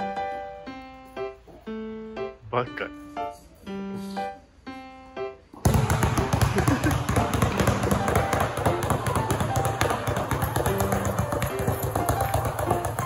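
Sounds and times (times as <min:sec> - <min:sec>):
basketballs dribbling on court floor: 0:05.6 - 0:13.0.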